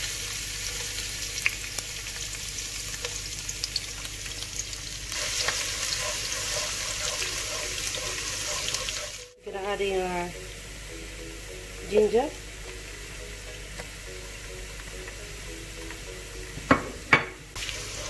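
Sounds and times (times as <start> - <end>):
garlic sizzling in oil: 0.0 - 18.0
spatula stirring in pan: 5.1 - 9.3, 17.6 - 18.0.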